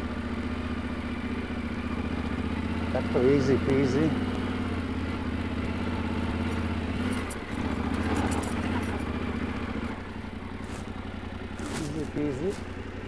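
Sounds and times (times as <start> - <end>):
motorcycle engine at low revs: 0.0 - 13.0.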